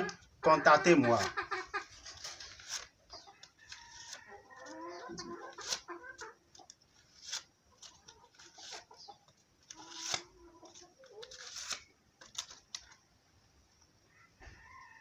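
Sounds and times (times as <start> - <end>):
chicken clucking: 0.0 - 2.3, 3.0 - 6.8, 7.6 - 11.3
paper banknotes rustling: 0.9 - 5.8, 6.6 - 9.0, 9.7 - 13.0.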